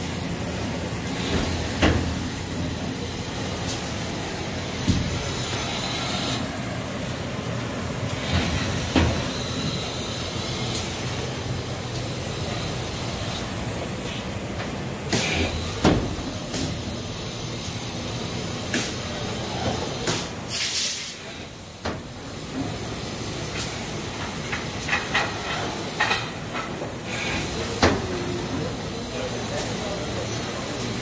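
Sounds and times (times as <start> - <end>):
pneumatic actuators clacking: 0.0 - 31.0
compressed air hissing: 18.7 - 21.5, 27.0 - 27.8.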